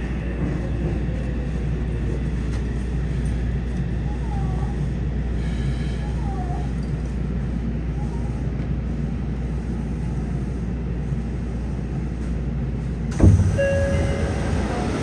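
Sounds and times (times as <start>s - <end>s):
low hum of subway car: 0.0s - 15.0s
sliding doors opening with knock: 13.1s - 15.0s
short steady tone: 13.2s - 15.0s.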